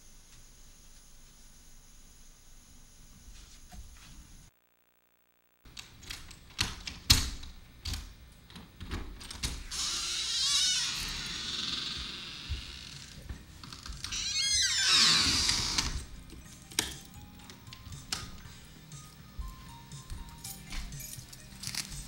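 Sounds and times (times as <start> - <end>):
steady hiss: 0.0 - 4.6.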